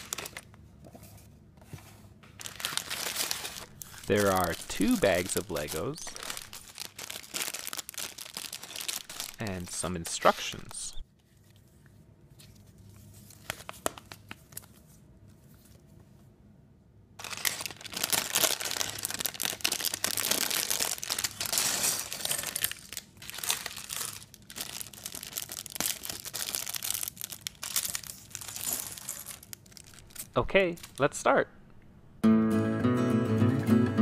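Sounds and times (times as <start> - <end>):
plastic bag crinkling: 0.0 - 0.6, 2.4 - 10.9, 17.2 - 31.2.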